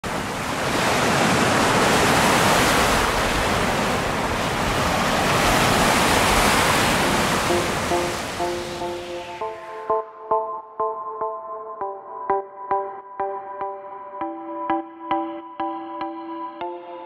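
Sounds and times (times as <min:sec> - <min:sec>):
ocean surf on sandy beach: 0:00.0 - 0:09.9
soft music notes: 0:07.0 - 0:17.0.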